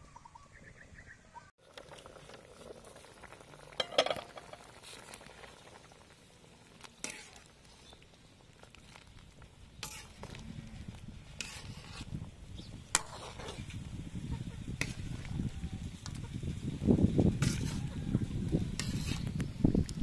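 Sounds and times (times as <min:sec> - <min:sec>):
metal spatula scraping wok: 0:07.0 - 0:08.0, 0:09.8 - 0:12.2, 0:12.9 - 0:13.8, 0:17.4 - 0:18.0, 0:18.7 - 0:19.4.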